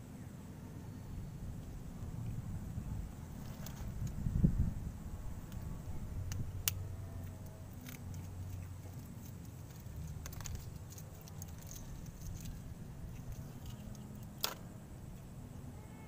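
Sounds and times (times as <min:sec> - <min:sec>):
steady low rumble: 0:00.0 - 0:15.8
eggshell crackling while peeled: 0:07.7 - 0:14.6.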